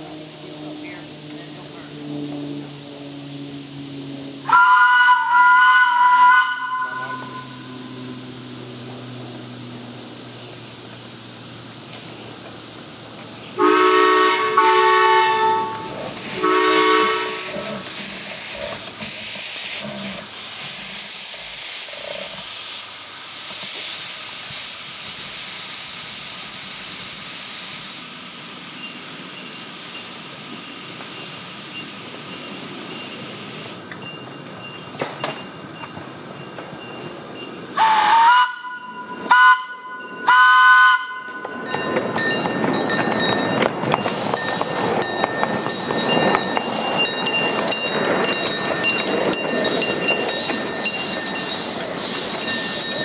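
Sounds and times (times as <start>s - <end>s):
steam hissing: 0.0s - 53.0s
steam locomotive whistle: 3.2s - 8.2s, 13.6s - 18.5s, 37.7s - 41.9s.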